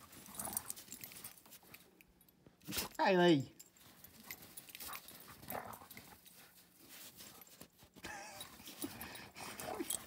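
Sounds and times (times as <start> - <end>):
paws scuffling in snow: 3.7 - 9.9.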